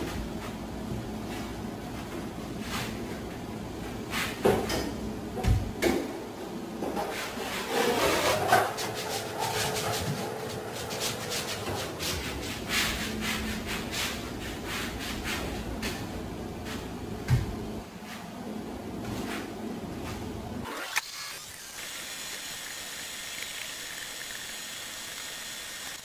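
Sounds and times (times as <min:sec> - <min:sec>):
broom sweeping on plywood: 0:01.2 - 0:03.0, 0:04.0 - 0:04.4, 0:07.1 - 0:17.0.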